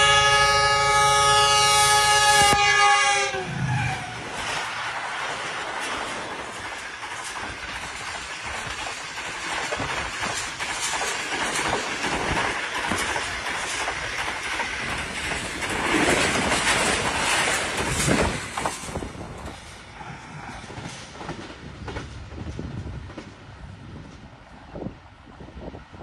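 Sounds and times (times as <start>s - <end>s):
train wheels clattering on rails: 4.0s - 24.3s.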